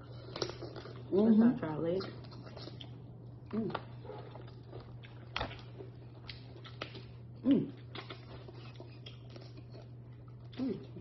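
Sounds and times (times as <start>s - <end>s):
low steady hum: 0.0s - 11.0s
eating mouth sounds: 6.3s - 11.0s.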